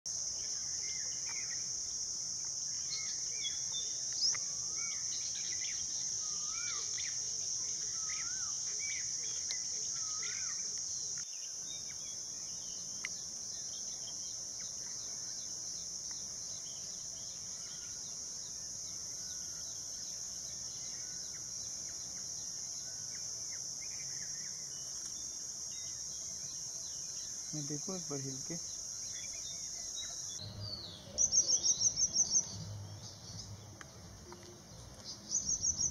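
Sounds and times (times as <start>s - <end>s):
high-pitched insect drone: 0.2s - 12.4s
faint wavering bird calls: 2.8s - 11.2s.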